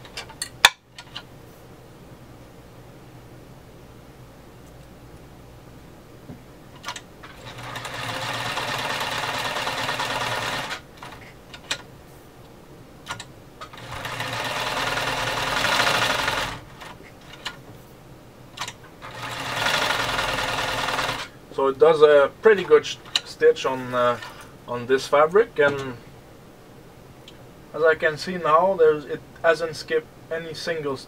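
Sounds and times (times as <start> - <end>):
sewing machine stitching: 6.8 - 11.3, 13.1 - 17.6, 18.6 - 21.3, 23.8 - 24.5.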